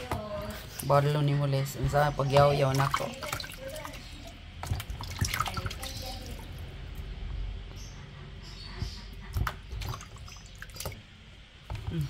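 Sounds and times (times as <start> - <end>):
water splashing and dripping: 1.9 - 7.1, 9.2 - 11.8.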